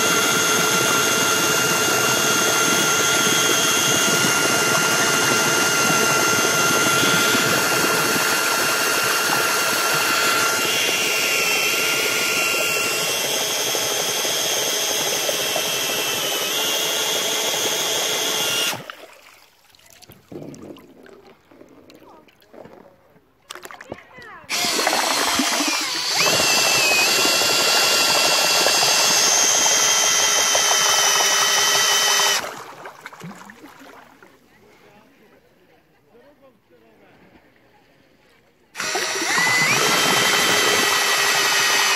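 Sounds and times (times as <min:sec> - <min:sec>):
drill motor whine: 0:00.0 - 0:18.9, 0:24.5 - 0:32.5, 0:38.8 - 0:41.9
propeller splashing in water: 0:00.0 - 0:20.6, 0:23.5 - 0:34.2, 0:38.8 - 0:41.9.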